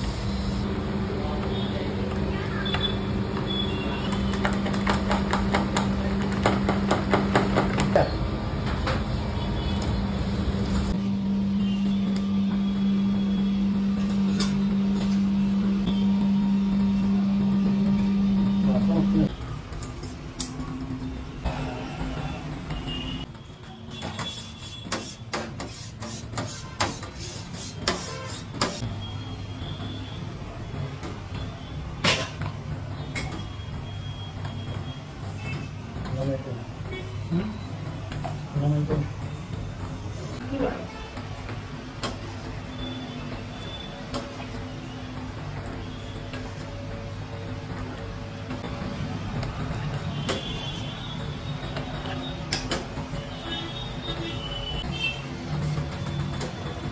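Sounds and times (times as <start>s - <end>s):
steady machine hum: 10.4s - 19.3s.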